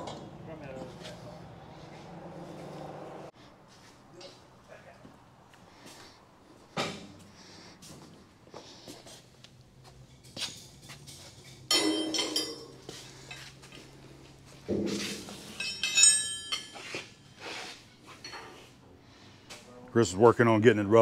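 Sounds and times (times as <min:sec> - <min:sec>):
steel tools clanking: 0:10.1 - 0:13.6, 0:14.8 - 0:17.4
ringing metallic note: 0:11.7 - 0:12.8.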